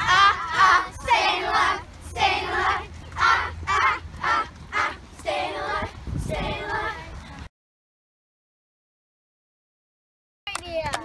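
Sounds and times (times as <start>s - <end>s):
girls singing high phrases: 0.0s - 7.4s.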